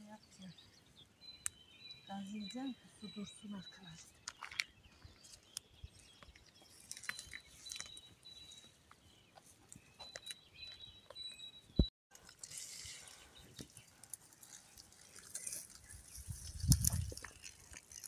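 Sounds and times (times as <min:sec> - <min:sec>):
birds chirping: 0:00.0 - 0:11.9, 0:12.8 - 0:17.8.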